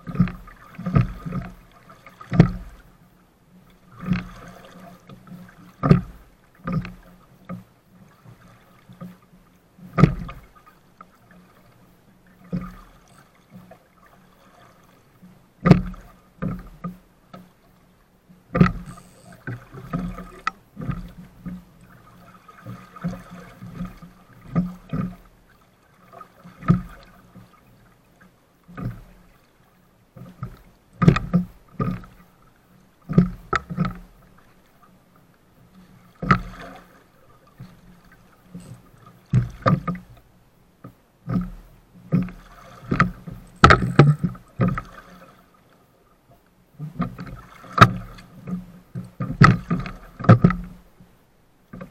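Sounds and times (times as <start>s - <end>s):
waves thumping boat hull: 0.0s - 51.9s.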